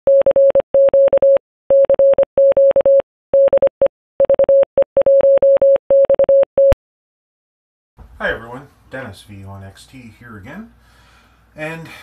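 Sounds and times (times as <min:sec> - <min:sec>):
morse code beeps: 0:00.1 - 0:06.8.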